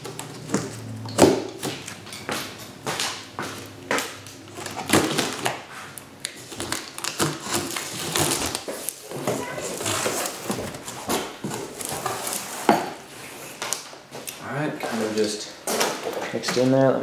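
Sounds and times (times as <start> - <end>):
cardboard scraping and rustling: 4.5 - 13.8.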